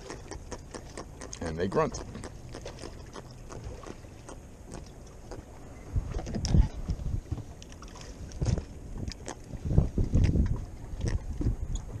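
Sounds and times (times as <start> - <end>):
fish grunting: 0.0 - 5.6.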